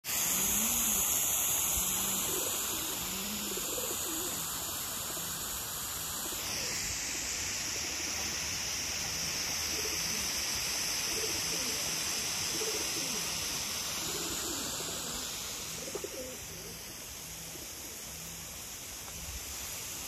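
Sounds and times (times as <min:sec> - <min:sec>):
hose water spraying: 0:00.0 - 0:20.0
pigeons cooing: 0:00.2 - 0:07.0, 0:09.6 - 0:18.4.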